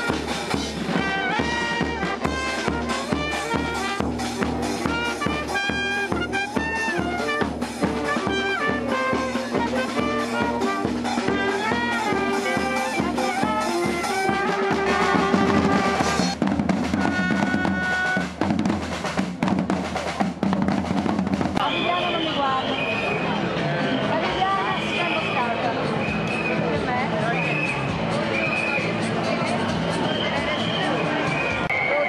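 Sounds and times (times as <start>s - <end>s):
marching bass drums beating: 0.0s - 22.6s
street band horns playing: 0.0s - 32.0s.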